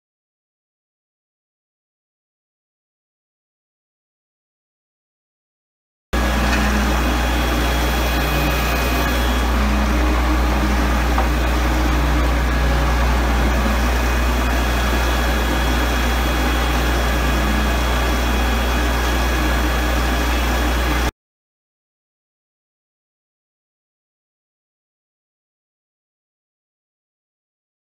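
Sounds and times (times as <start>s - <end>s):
mixer machine droning: 6.2s - 21.1s.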